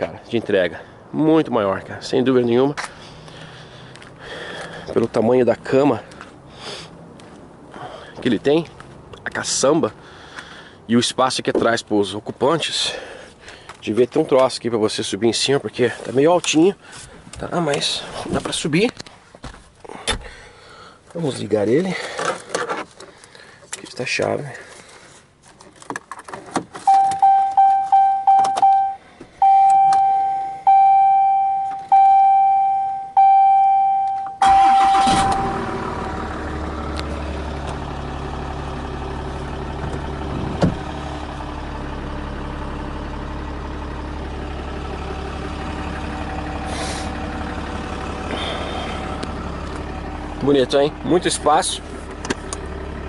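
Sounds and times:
diesel engine starting and idling: 0:00.6 - 0:08.6, 0:26.9 - 0:53.0
dashboard warning chime: 0:26.9 - 0:35.6.

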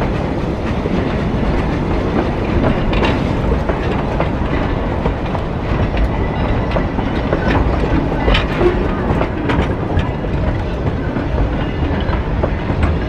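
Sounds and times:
railroad cars rumbling past: 0:00.0 - 0:13.0
wheels clanking over rail joints: 0:00.0 - 0:13.0.

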